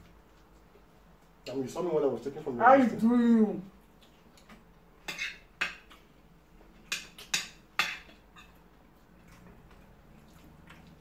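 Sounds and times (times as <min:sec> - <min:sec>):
eating clicks and smacks: 0:08.5 - 0:11.0.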